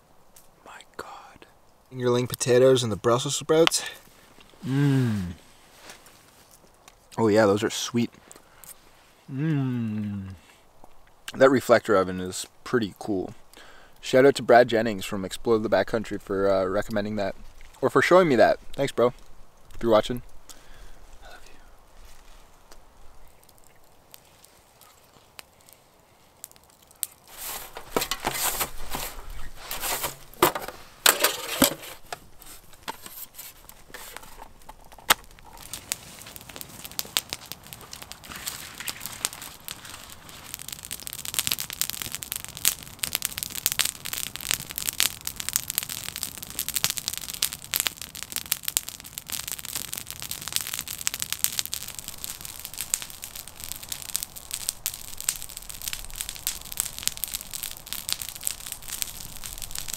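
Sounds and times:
campfire crackling and popping: 0.0s - 59.9s
dry brush crunching: 27.0s - 40.8s.

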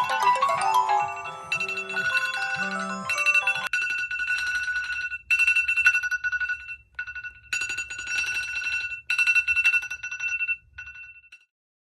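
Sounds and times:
phone alarm beeps and chimes: 0.0s - 3.9s
phones vibrating buzz: 0.9s - 3.7s.

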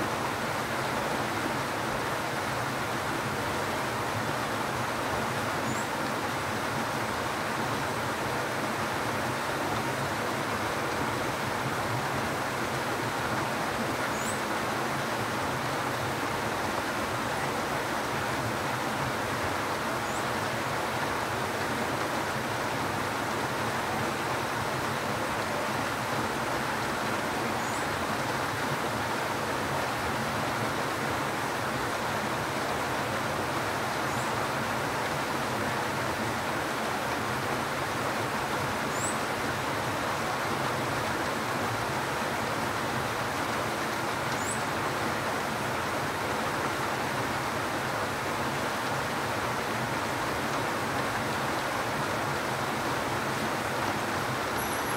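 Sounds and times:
steady rain falling: 0.0s - 54.9s
faint high bird chirps: 38.9s - 39.2s, 54.5s - 54.9s.

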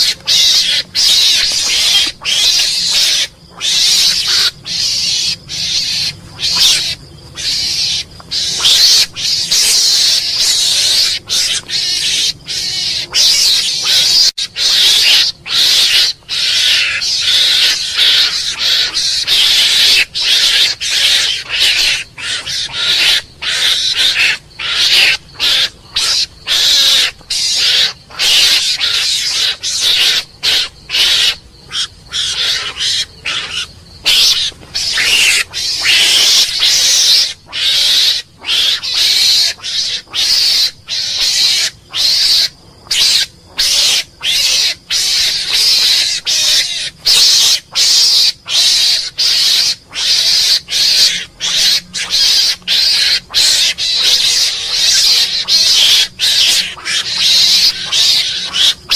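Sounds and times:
mongoose calling harshly: 0.0s - 58.9s.

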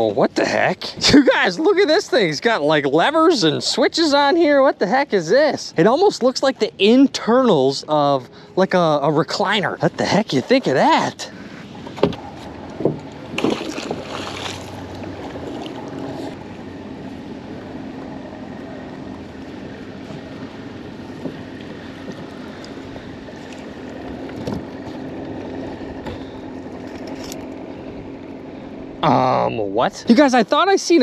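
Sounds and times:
water noise: 0.0s - 31.0s
wind: 0.0s - 31.0s
magnet splashing into water: 13.3s - 16.0s.

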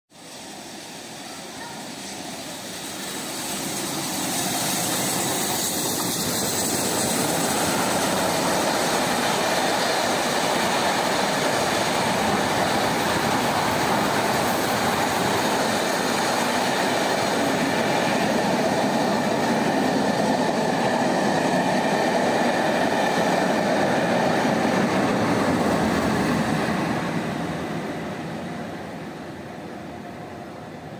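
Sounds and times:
train passing on rails: 0.1s - 30.9s
clickety-clack of coaches: 4.3s - 13.8s.

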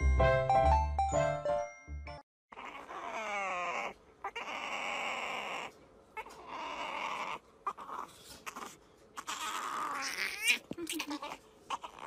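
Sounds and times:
kitten crying: 2.5s - 12.0s.

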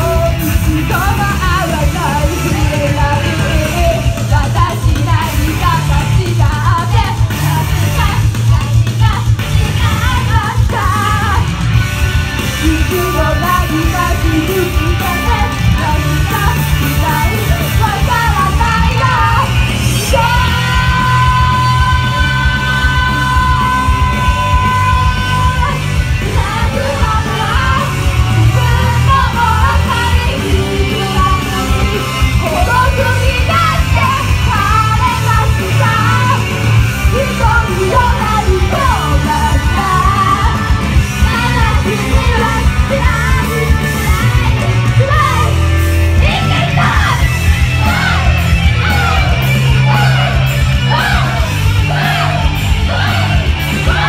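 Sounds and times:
women singing into microphones: 0.0s - 11.6s, 12.6s - 54.0s
heavy bass beat: 0.0s - 54.0s
people shouting along: 46.2s - 54.0s.

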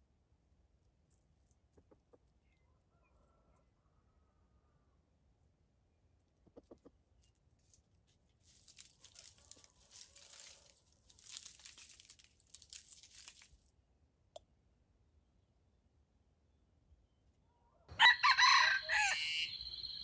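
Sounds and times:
crackling and rustling: 7.2s - 13.7s.

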